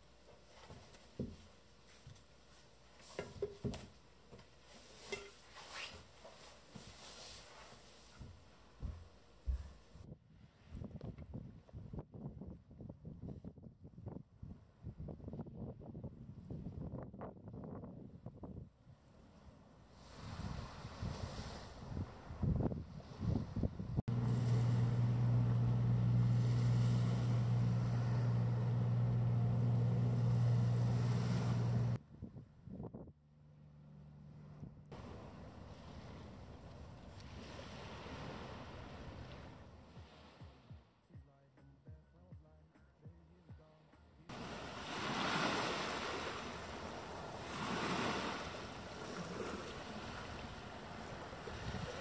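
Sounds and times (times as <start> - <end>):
hiss of wind and water: 19.8 - 23.4, 35.0 - 40.4, 44.3 - 52.0
motorboat engine drone: 24.1 - 32.0
small waves washing on sand: 35.0 - 40.4, 44.3 - 52.0.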